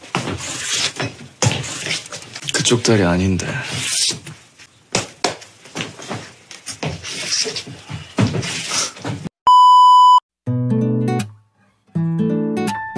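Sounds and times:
steady electronic beep: 9.5s - 10.2s.

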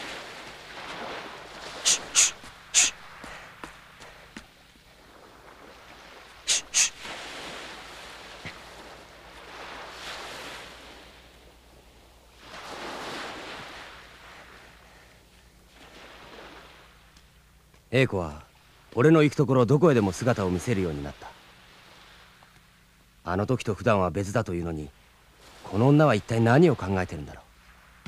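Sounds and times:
surf washing onto beach: 0.0s - 14.8s.

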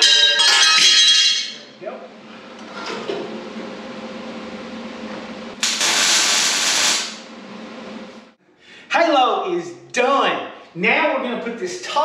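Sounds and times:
steady background hum: 0.0s - 12.0s
welding arc buzzing: 4.8s - 8.4s.

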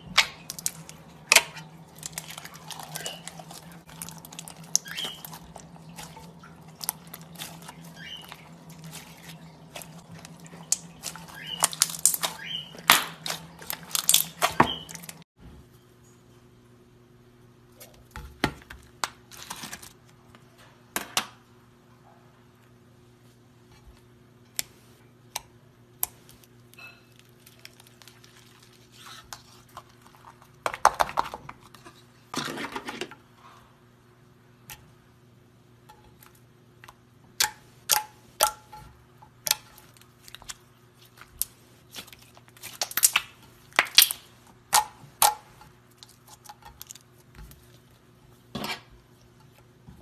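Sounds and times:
faint steady hum: 0.0s - 50.0s
crackly slime squishes: 0.2s - 15.2s, 26.0s - 32.0s, 39.4s - 48.2s.

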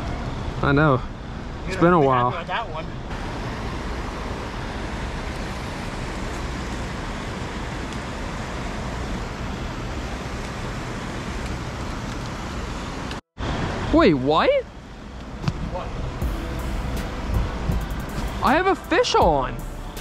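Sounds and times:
outdoor rushing noise: 0.0s - 20.0s
low rumble: 15.9s - 20.0s.

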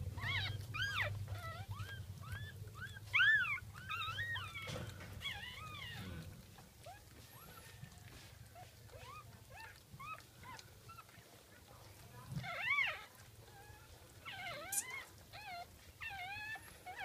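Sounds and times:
puppies squeaking and whimpering: 0.0s - 17.0s.

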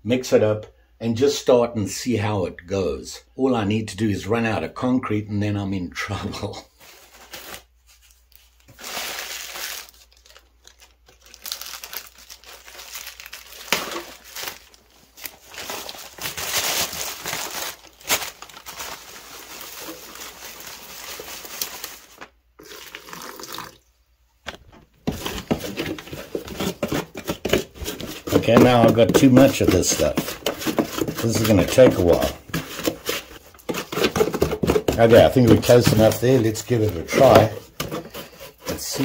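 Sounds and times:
plastic bag crinkling: 6.9s - 23.5s, 25.0s - 38.7s
cement powder pouring into tub: 22.6s - 23.8s.

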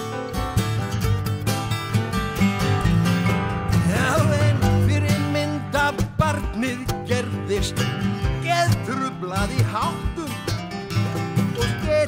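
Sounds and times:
guitars: 0.0s - 12.0s
man singing into microphone: 3.8s - 10.6s, 11.5s - 12.0s.

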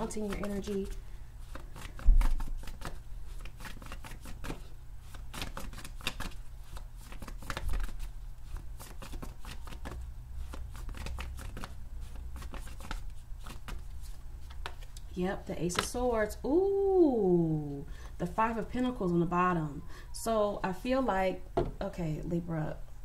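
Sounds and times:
cards being shuffled: 0.0s - 15.1s, 15.7s - 16.0s.

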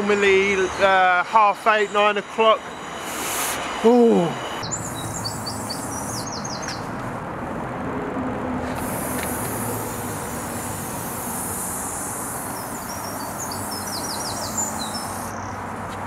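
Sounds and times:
birds chirping: 0.0s - 7.0s, 8.8s - 15.7s
spray paint can hissing: 3.0s - 3.6s, 4.6s - 6.8s, 8.6s - 16.0s.

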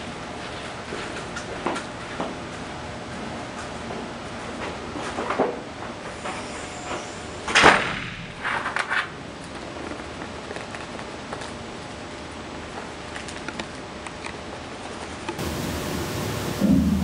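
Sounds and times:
steady hiss: 15.4s - 17.0s.

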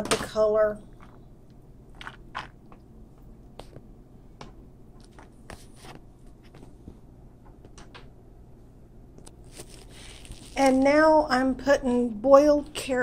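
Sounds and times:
low steady hum: 0.0s - 13.0s
foil pan crinkling: 9.4s - 11.3s.

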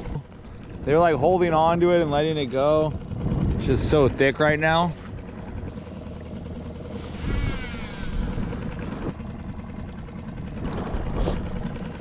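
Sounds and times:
wind buffeting microphone: 0.0s - 5.8s
water moving around boat: 0.0s - 12.0s
brief wavering whine: 5.7s - 9.1s.

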